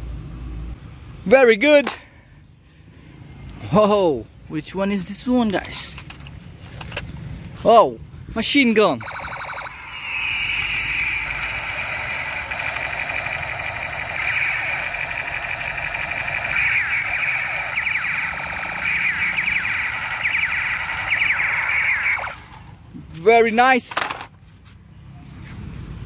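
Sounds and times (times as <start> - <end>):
toy machine gun sound effect: 9.0 - 22.5.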